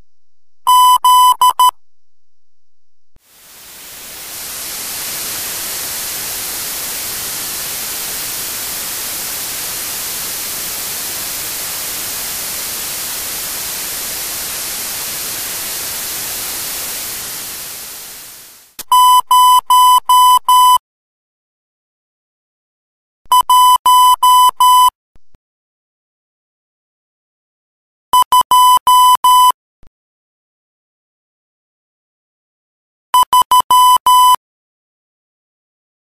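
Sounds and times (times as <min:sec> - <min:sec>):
morse code tone: 0:00.7 - 0:01.8, 0:23.3 - 0:24.9, 0:28.2 - 0:29.5, 0:33.2 - 0:34.4
steady hiss: 0:03.2 - 0:18.8.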